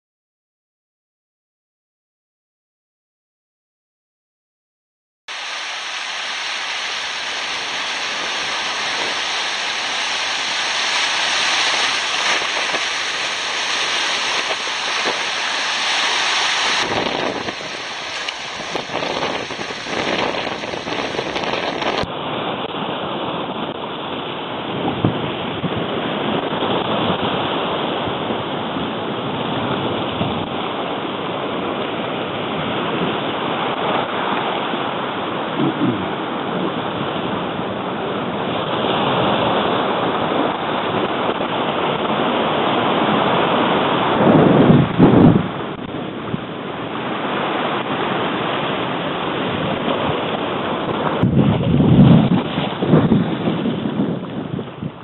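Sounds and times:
sea waves washing against rocks: 5.3 - 55.0
water rushing over rocks: 5.3 - 55.0
wind buffeting microphone: 6.4 - 55.0.

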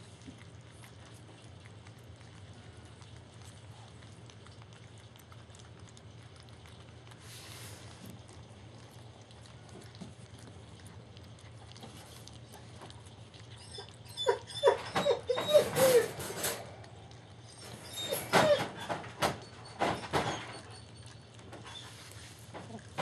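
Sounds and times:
puppies squeaking and whimpering: 12.4 - 22.8.

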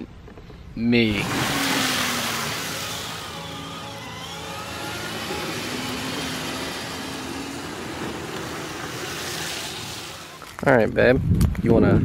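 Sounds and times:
toy car motors whining: 1.1 - 10.6.

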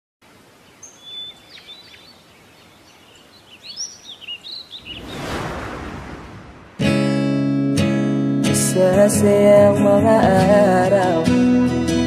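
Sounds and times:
birds chirping and twittering: 0.2 - 5.9
rush of noise: 4.8 - 7.4.

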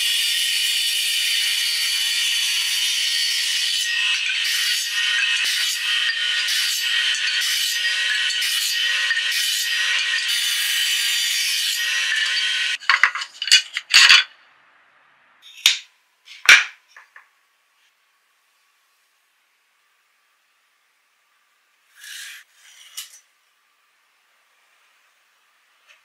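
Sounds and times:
table saw cutting wood: 0.0 - 12.8
wooden strips clattering: 12.8 - 14.3.

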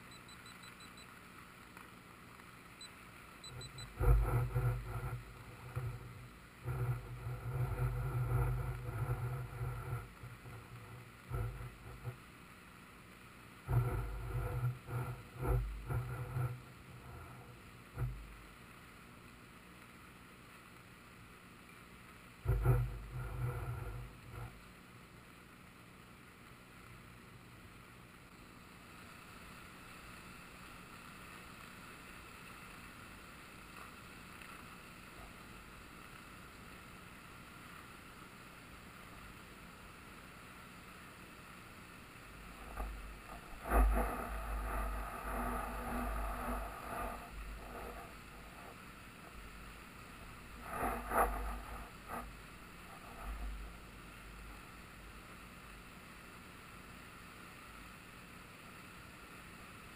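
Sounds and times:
flood water rushing: 41.2 - 55.2.

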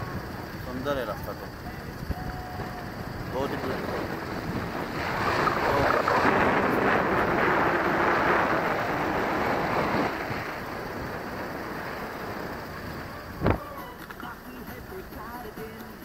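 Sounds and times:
wind rushing over microphone: 0.0 - 13.8
road and engine noise: 0.0 - 16.0.

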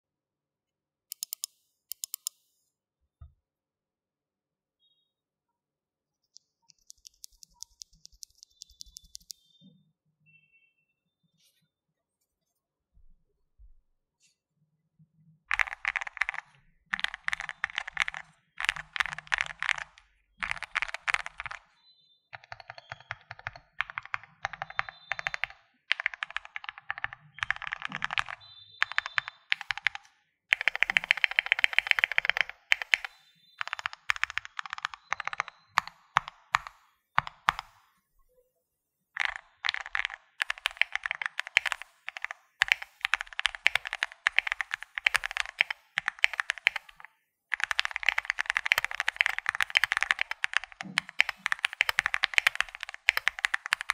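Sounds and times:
mechanical keyboard typing: 1.1 - 2.4, 6.4 - 9.4, 15.5 - 21.7, 22.4 - 37.9, 39.2 - 53.9.

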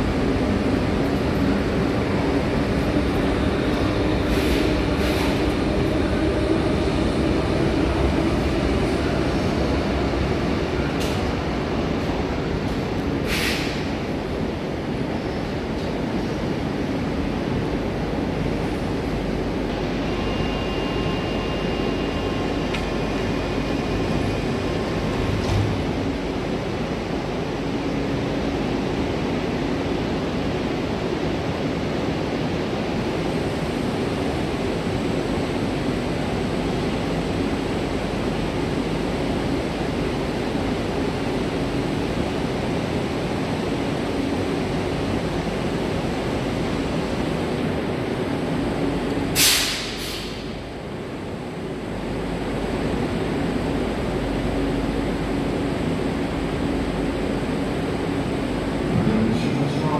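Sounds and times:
electric train rumbling: 0.0 - 59.9
faint high whine: 19.7 - 24.9.

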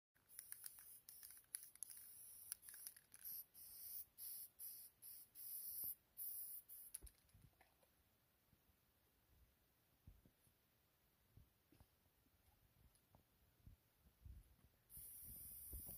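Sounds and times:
aerosol spray can hissing: 0.3 - 7.1, 14.9 - 15.9.

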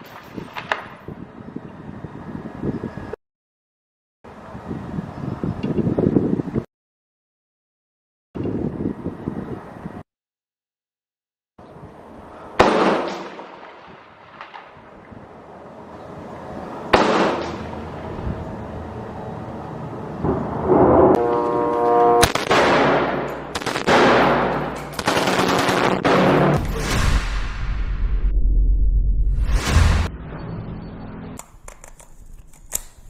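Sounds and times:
single gunshots echoing: 12.6 - 14.8, 22.2 - 27.6
automatic gunfire bursts: 22.2 - 26.5.

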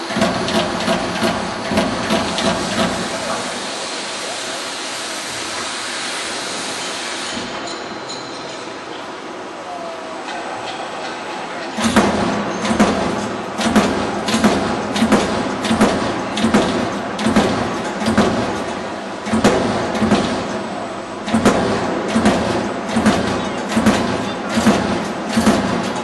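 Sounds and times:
metallic punch strokes: 0.0 - 4.0, 11.8 - 26.0
machine running noise: 0.0 - 26.0.

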